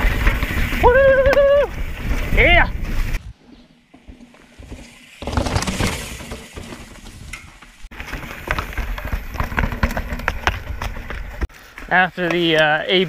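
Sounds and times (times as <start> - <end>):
bike rattling and knocking: 0.0 - 3.2, 3.8 - 11.5
bike tyres thudding on stone: 3.9 - 11.5.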